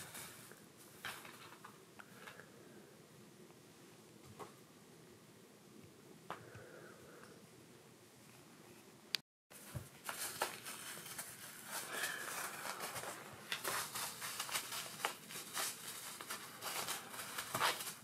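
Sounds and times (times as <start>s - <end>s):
kitten playing with beanbag: 9.5s - 18.0s.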